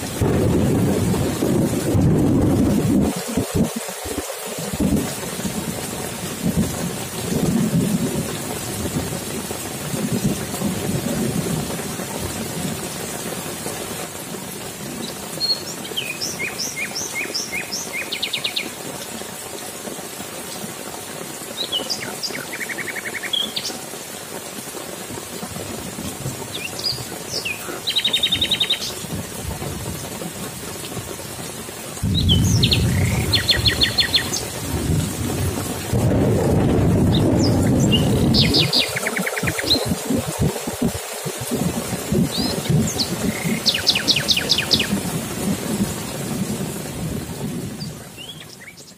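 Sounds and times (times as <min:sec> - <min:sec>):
thunder rumbling: 0:00.0 - 0:12.9, 0:32.0 - 0:48.3
rain hissing: 0:00.0 - 0:48.9
bird chirping calls: 0:21.6 - 0:23.7, 0:26.5 - 0:29.0, 0:32.1 - 0:34.5, 0:37.1 - 0:39.9, 0:42.3 - 0:44.9.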